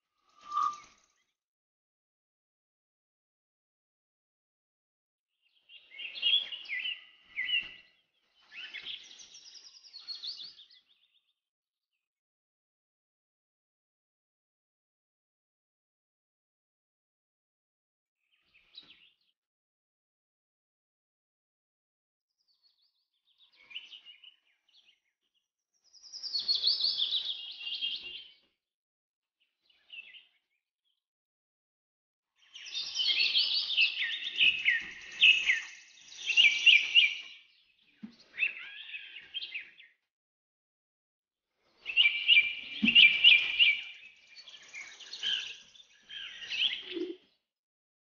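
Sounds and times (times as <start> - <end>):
small birds chirping: 5.4 - 11.4, 22.4 - 28.6, 29.4 - 31.0, 32.4 - 40.1, 41.6 - 47.5.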